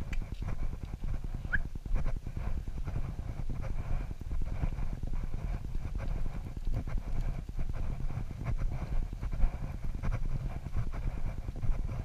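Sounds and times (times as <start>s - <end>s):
camera movement rumble and knocking: 0.0s - 12.0s
footsteps on stone steps: 0.0s - 12.0s.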